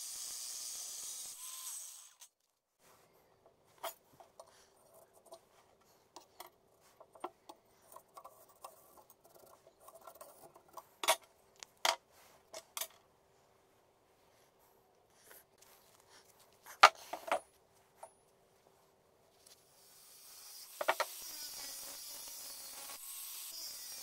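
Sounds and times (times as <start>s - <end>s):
tools handled on wooden workbench: 3.4s - 13.0s, 16.8s - 18.2s.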